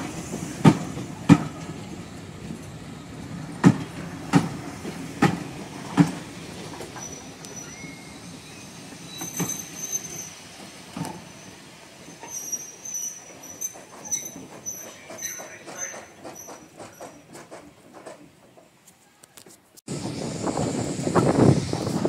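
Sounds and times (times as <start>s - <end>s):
wheels knocking on rail joints: 3.5s - 7.1s, 13.4s - 18.8s
high-pitched wheel squeals: 7.0s - 10.4s, 12.2s - 16.7s.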